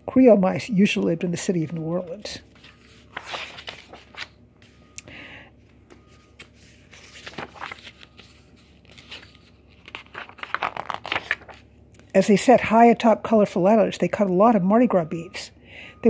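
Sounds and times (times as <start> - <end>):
book pages turning: 1.5 - 4.8, 5.8 - 12.1.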